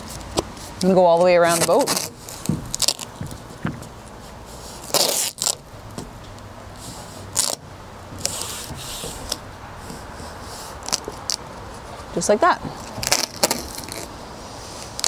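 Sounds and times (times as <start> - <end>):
tape ripping off roll: 1.4 - 3.5, 4.8 - 6.0, 6.8 - 7.6, 8.2 - 9.4, 10.8 - 11.5, 12.8 - 14.2, 14.8 - 15.0.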